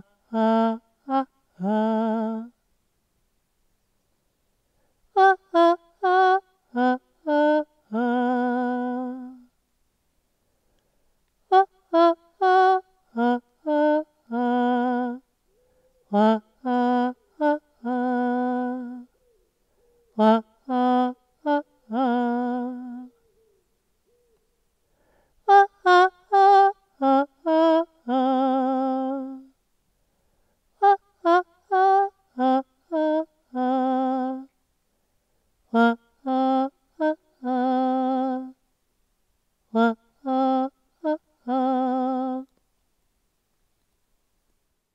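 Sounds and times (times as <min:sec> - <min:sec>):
woman singing unaccompanied: 0:00.0 - 0:02.6, 0:05.1 - 0:09.6, 0:11.4 - 0:19.1, 0:20.1 - 0:23.2, 0:25.4 - 0:29.6, 0:30.7 - 0:34.6, 0:35.7 - 0:38.7, 0:39.6 - 0:42.6.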